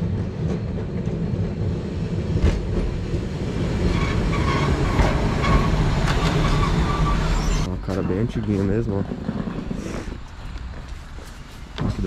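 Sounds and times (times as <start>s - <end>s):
tram clack: 0.0s - 12.0s
tram rumbling on rails: 0.0s - 12.0s
faint high squeal: 3.9s - 8.4s.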